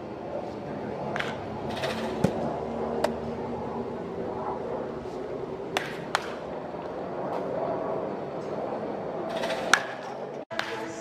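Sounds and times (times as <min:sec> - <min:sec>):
baseball bat hitting ball: 0:05.7 - 0:06.4, 0:09.3 - 0:11.0.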